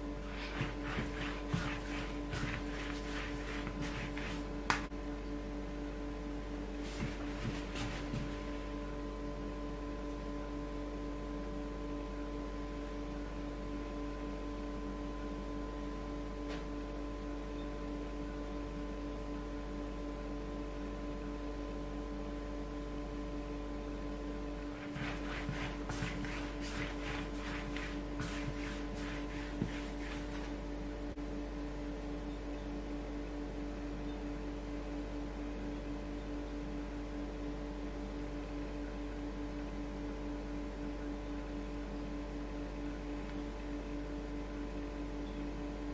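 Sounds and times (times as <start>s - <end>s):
steady hum of held tones: 0.0s - 45.9s.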